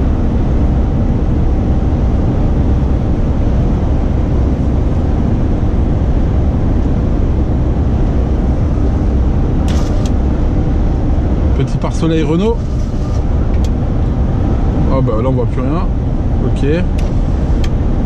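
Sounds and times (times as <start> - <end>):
road noise: 0.0 - 18.0
truck engine drone: 0.0 - 18.0
sharp rustle or click: 9.7 - 10.2.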